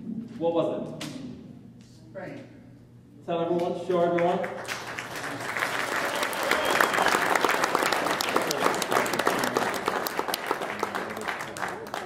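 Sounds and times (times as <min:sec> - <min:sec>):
audience applauding: 0:04.5 - 0:12.0.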